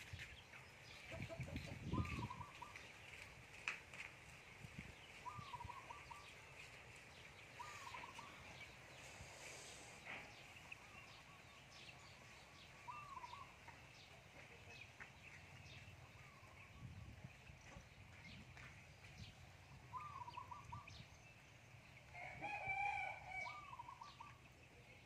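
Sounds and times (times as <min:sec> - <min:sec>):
chicks peeping: 0:00.1 - 0:03.3, 0:04.7 - 0:18.7
hen calling: 0:05.2 - 0:06.3, 0:07.5 - 0:10.0, 0:12.7 - 0:13.8, 0:19.9 - 0:21.0.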